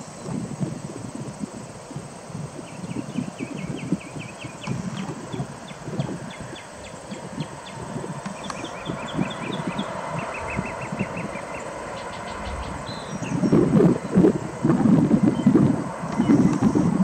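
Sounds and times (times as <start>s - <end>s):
distant jet rumble: 0.0s - 17.0s
wind on microphone: 0.0s - 17.0s
rapid high chirps: 2.7s - 14.6s.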